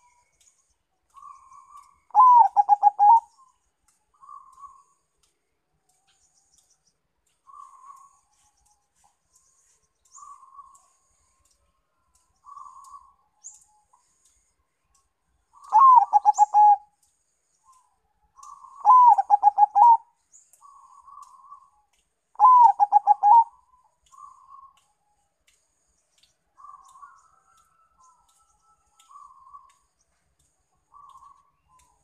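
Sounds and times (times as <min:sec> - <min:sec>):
faint high chirps: 0:00.0 - 0:32.0
dove cooing song: 0:01.1 - 0:03.5, 0:15.6 - 0:17.0, 0:18.4 - 0:21.7, 0:22.4 - 0:24.8.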